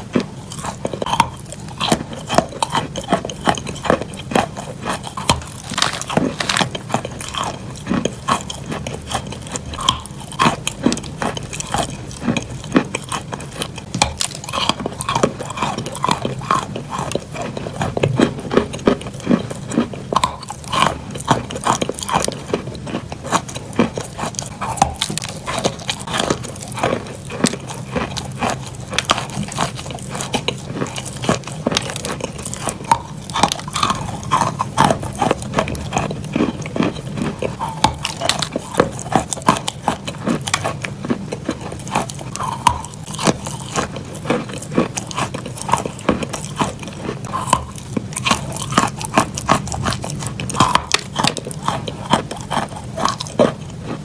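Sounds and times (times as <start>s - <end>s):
chalk crunching between teeth: 0.0s - 54.0s.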